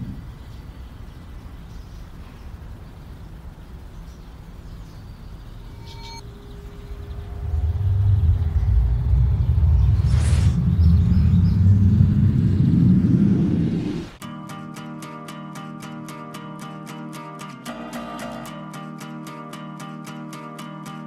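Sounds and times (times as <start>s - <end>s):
faint steady tone: 0.0s - 12.8s
low rumbling background noise: 0.0s - 14.2s.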